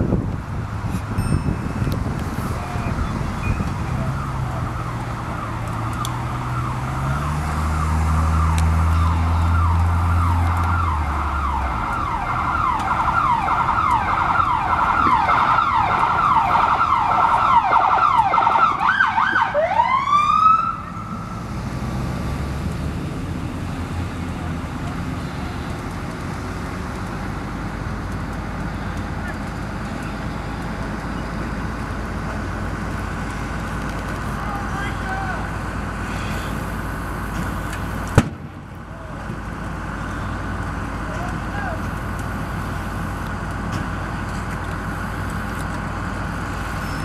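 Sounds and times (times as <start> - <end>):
deep engine drone: 0.0 - 47.0
siren yelping: 1.8 - 21.2.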